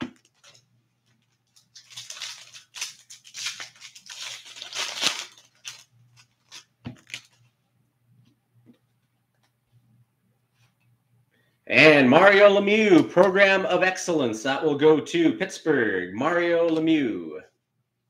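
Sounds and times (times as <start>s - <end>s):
foil wrapper crinkling: 0.2s - 7.5s.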